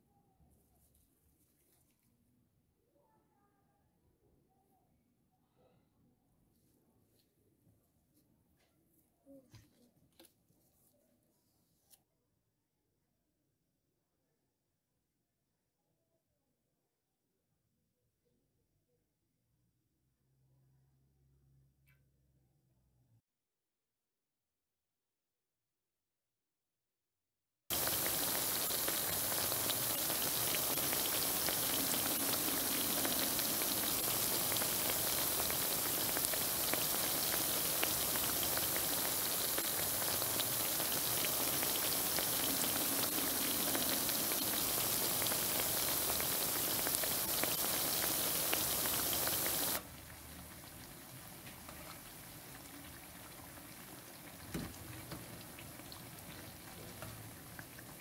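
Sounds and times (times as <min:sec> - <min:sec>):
food deep-frying in hot oil: 0:27.7 - 0:58.0.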